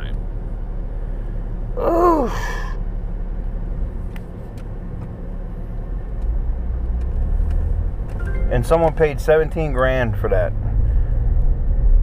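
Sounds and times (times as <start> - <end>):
person saying oof: 1.8 - 2.7.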